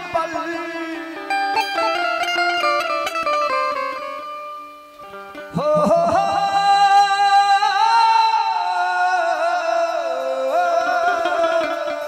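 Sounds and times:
man singing devotional song: 0:00.0 - 0:02.6, 0:05.5 - 0:12.0
harmonium: 0:00.0 - 0:12.0.

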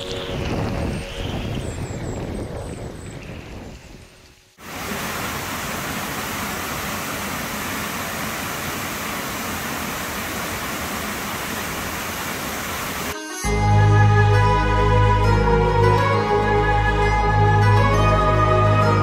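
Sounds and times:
waterfall rushing into pool: 0:04.6 - 0:13.2.

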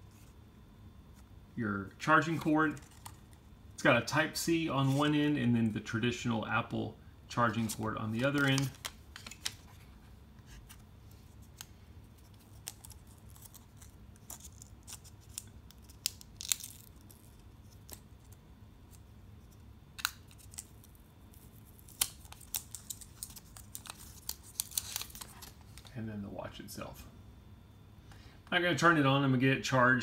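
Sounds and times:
packaging rustling: 0:07.5 - 0:18.4, 0:20.0 - 0:25.9
plastic wrap crackling: 0:07.7 - 0:09.7, 0:12.3 - 0:18.2, 0:20.0 - 0:25.9.

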